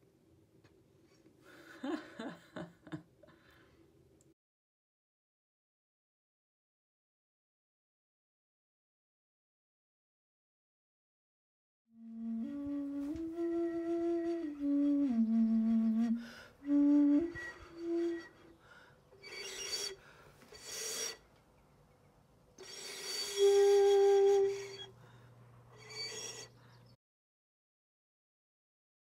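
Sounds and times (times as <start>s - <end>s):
vessel flute notes: 12.0s - 18.6s, 19.2s - 21.2s, 22.6s - 25.0s, 25.8s - 26.6s
breathy flute blows: 12.0s - 21.3s, 22.6s - 26.8s.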